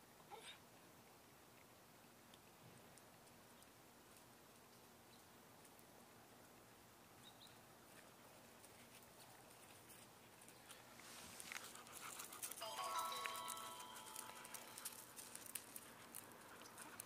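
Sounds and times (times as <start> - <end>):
faint outdoor ambience: 0.0 - 17.0
faint clicks and rustles: 7.8 - 12.6, 13.2 - 17.0.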